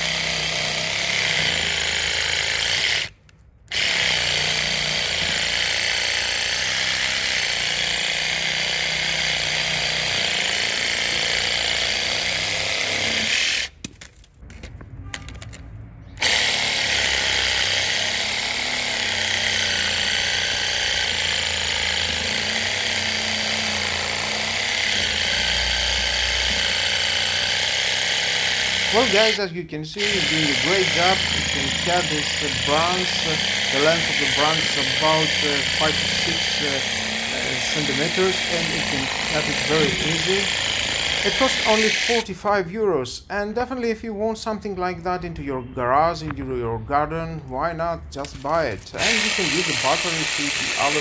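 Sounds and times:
reciprocating saw cutting branch: 16.2s - 29.4s, 30.0s - 42.2s, 48.9s - 51.0s.

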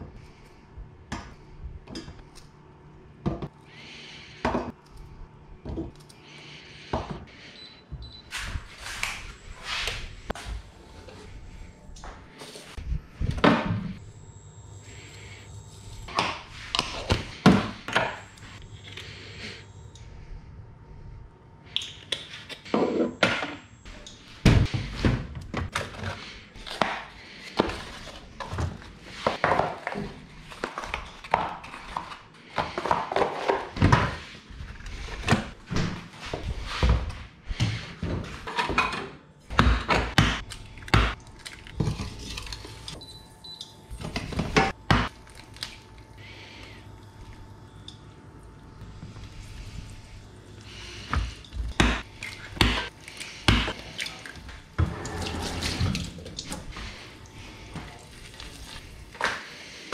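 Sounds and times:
kitchen items knocking and clattering: 37.9s - 42.5s.

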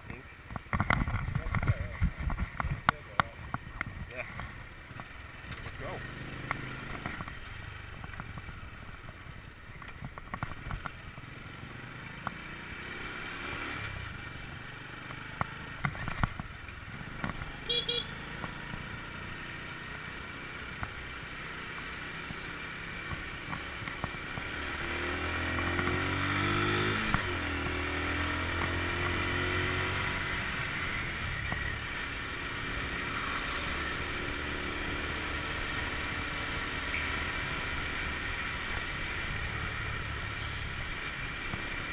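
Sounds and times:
scooter engine running: 13.9s - 27.5s.

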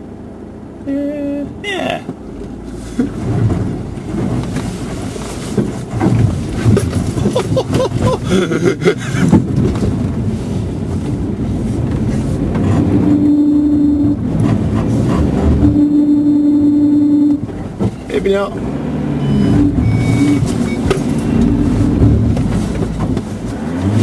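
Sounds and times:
engine running under load: 0.0s - 24.0s
vehicle knocks and rattles: 2.0s - 13.0s, 17.4s - 18.1s, 19.7s - 24.0s
steady droning note: 13.0s - 14.3s, 15.4s - 17.4s.

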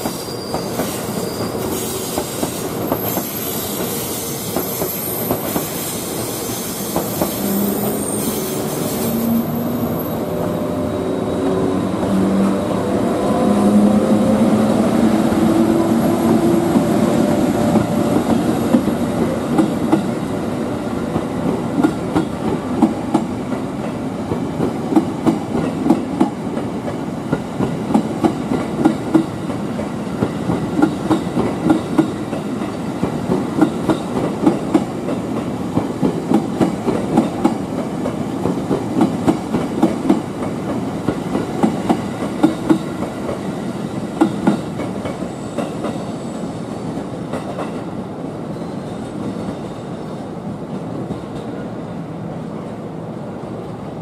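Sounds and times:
train rolling rumble: 0.0s - 54.0s
train wheels clacking on rail joints: 24.3s - 43.4s, 44.1s - 46.0s.

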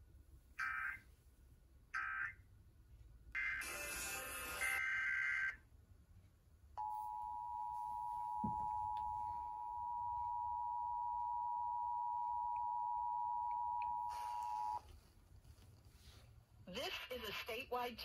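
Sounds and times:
two-tone alert alarm from radio: 12.7s - 14.8s.

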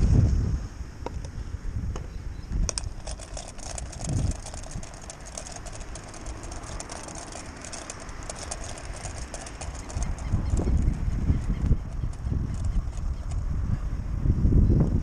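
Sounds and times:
wind buffeting microphone: 0.0s - 15.0s
faint rapid clicks: 2.6s - 13.5s
distant boat engine droning: 2.7s - 13.9s.

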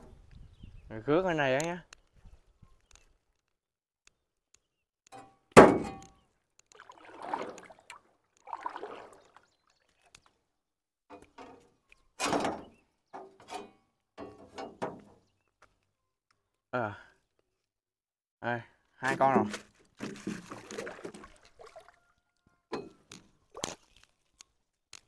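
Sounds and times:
sharp thunk: 5.6s - 6.2s.

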